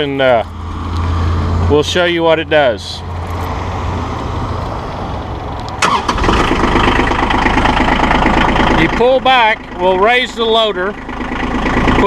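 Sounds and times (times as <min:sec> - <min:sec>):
diesel engine idling: 0:00.0 - 0:12.0
starter motor cranking: 0:05.8 - 0:08.9.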